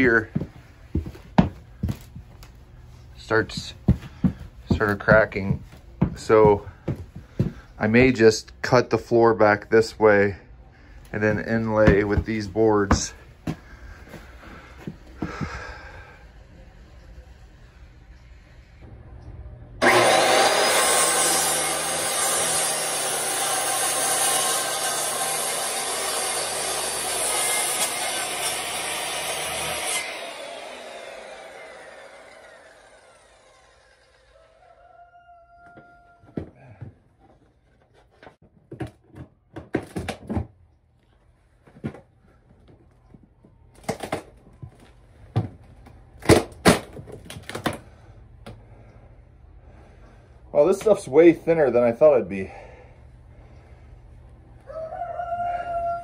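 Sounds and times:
floorboards knocking and thudding: 0.4s - 2.2s, 11.8s - 13.7s, 38.2s - 40.6s, 45.3s - 45.6s
circular saw cutting wood: 19.8s - 34.7s.

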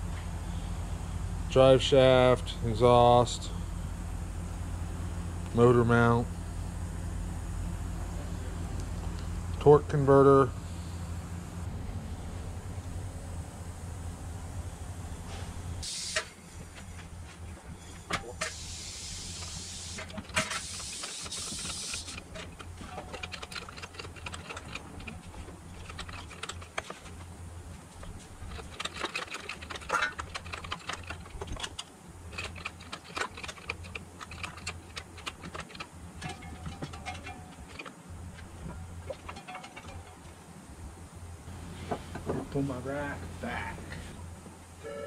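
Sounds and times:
air hissing: 15.2s - 16.6s, 17.8s - 22.3s
tools clicking and clinking: 19.4s - 27.2s, 28.0s - 40.3s.

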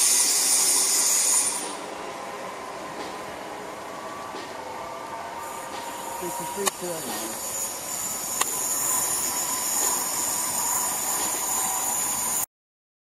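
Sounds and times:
train wheels squealing: 0.0s - 1.9s, 4.0s - 12.5s
train running noise: 0.0s - 12.5s.

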